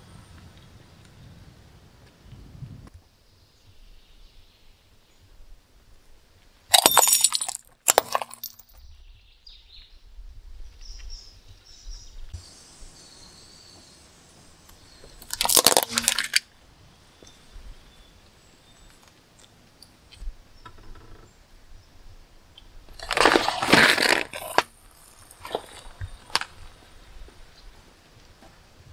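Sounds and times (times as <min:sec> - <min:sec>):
plastic toy crunching: 0:06.7 - 0:08.6, 0:15.2 - 0:16.4, 0:23.0 - 0:26.6
cup squashed with crackling crunch: 0:06.7 - 0:08.7, 0:15.2 - 0:16.4, 0:23.0 - 0:26.6
glass dish shattering: 0:06.7 - 0:08.7, 0:15.3 - 0:16.4.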